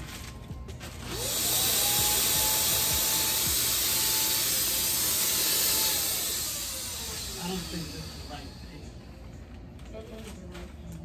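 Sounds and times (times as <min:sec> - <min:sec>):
paint sprayer motor whine: 0:01.0 - 0:09.7
hiss of spraying paint: 0:01.2 - 0:08.5.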